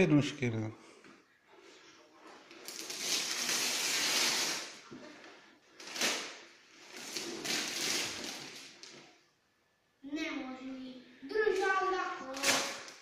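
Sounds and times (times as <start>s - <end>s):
wrapping paper tearing and crinkling: 2.5s - 4.9s, 5.7s - 9.0s, 11.5s - 13.0s.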